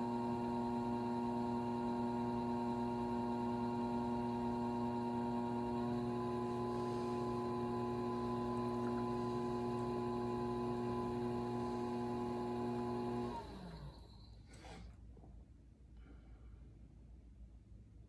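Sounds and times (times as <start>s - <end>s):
pottery wheel motor humming: 0.0s - 14.4s.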